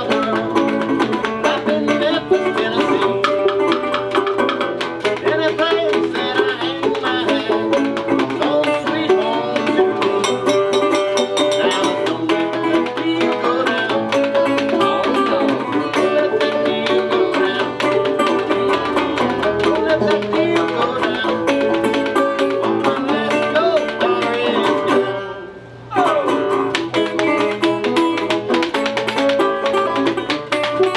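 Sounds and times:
banjo picking: 0.0s - 30.9s
guitar: 0.0s - 30.9s.

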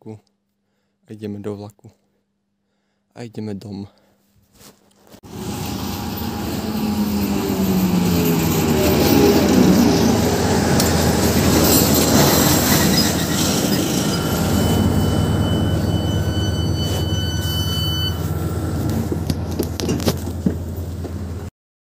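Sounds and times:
train rumbling and braking: 5.2s - 21.5s
high brake squeal: 5.3s - 20.0s.

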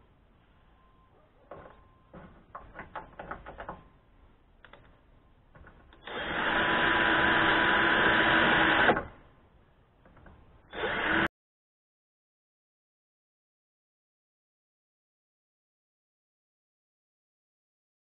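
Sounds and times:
cordless drill drilling into metal: 6.0s - 9.1s, 10.7s - 11.3s.

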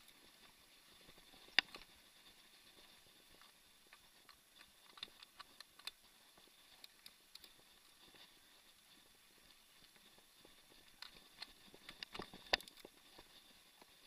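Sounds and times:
bike clicks and ticks on dirt trail: 0.0s - 14.0s.

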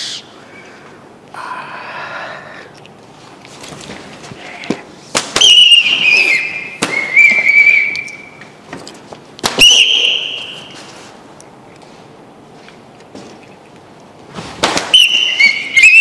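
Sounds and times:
sharp crack: 5.1s - 5.9s, 6.8s - 7.5s, 14.5s - 15.2s
plastic whistles warbling: 5.4s - 8.4s, 9.6s - 10.8s, 14.9s - 16.0s.

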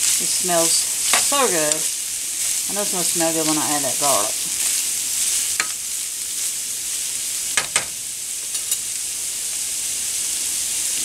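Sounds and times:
meat and onion sizzling in skillet: 0.0s - 11.0s
metal spoon clinking: 8.5s - 8.8s.

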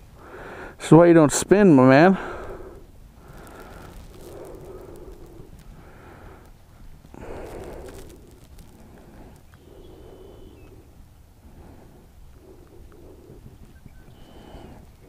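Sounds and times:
man breathing softly: 0.1s - 0.8s, 2.2s - 15.0s
faint small clicks: 7.6s - 9.7s.

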